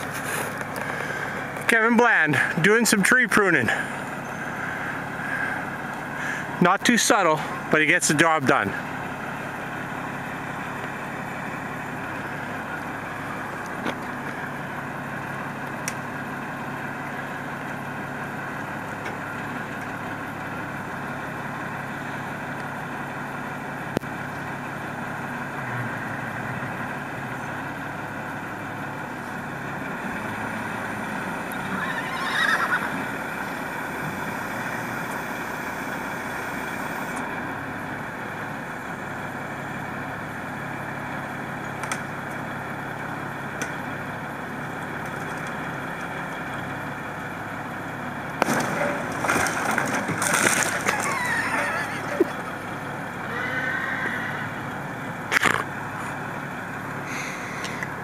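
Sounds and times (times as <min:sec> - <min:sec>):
truck engine running: 0:00.0 - 0:58.0
wavering squeal: 0:31.5 - 0:33.1, 0:50.8 - 0:52.5.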